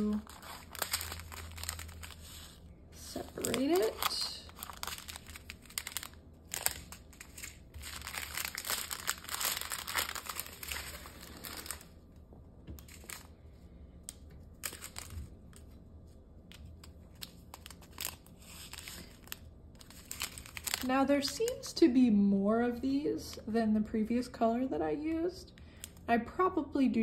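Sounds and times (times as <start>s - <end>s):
plastic bags crinkling: 0.0s - 12.0s, 12.8s - 13.4s, 14.5s - 15.7s, 16.9s - 21.8s.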